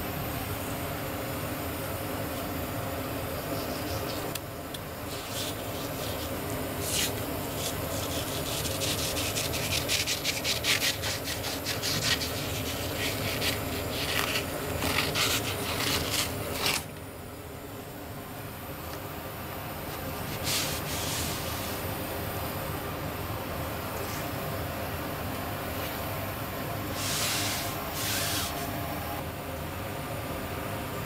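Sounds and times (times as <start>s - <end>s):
steady background hum: 0.0s - 31.0s
knife scraping fish skin: 5.1s - 16.9s.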